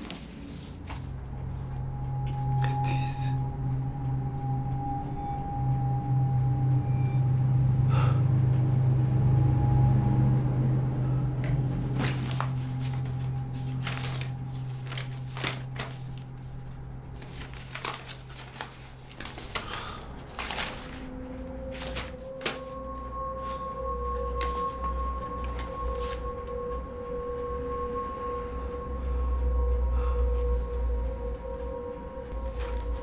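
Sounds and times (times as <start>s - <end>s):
low steady drone: 0.0s - 33.0s
paper rustling and crackling: 11.8s - 22.8s.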